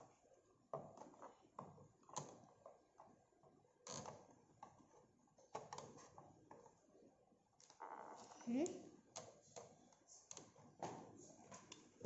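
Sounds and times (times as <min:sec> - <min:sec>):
plastic clicks and creaks: 0:03.8 - 0:04.8, 0:05.4 - 0:06.7, 0:07.6 - 0:11.9.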